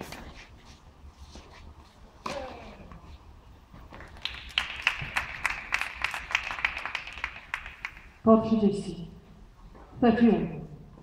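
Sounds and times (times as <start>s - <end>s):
spectators clapping: 3.9s - 8.2s.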